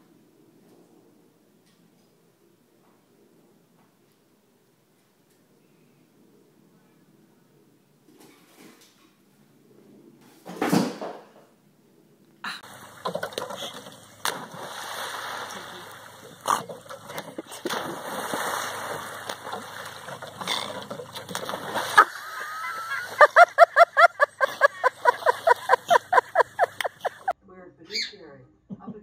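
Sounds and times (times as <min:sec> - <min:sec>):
water splashing and sloshing: 0:12.6 - 0:27.3.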